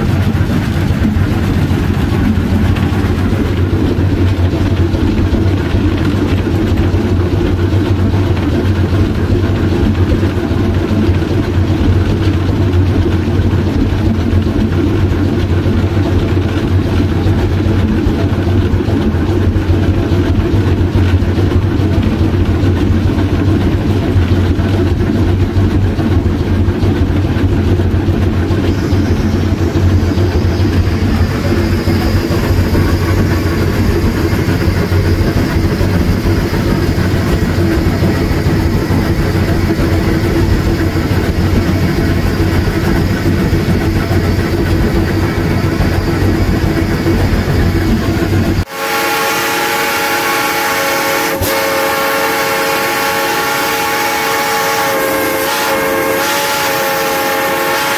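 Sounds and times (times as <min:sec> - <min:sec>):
steam locomotive mechanical drone: 0:00.0 - 0:57.9
steam whistle: 0:48.7 - 0:57.9.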